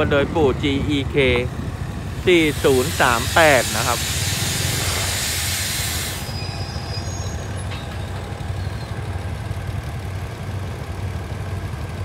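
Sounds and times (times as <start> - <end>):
diesel locomotive idling: 0.0 - 12.0
loud air hiss: 2.1 - 7.6.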